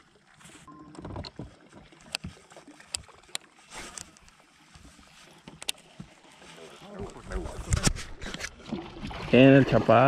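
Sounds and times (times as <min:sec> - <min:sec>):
faint water wash: 0:00.0 - 0:10.0
fishing tackle clicks and taps: 0:05.5 - 0:05.9.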